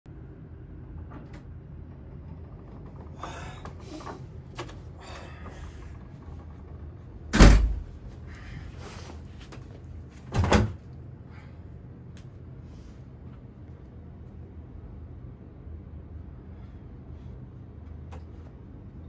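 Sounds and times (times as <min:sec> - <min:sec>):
low room hum: 0:00.1 - 0:19.0
door shutting with deep thud: 0:07.3 - 0:08.1, 0:10.2 - 0:10.8.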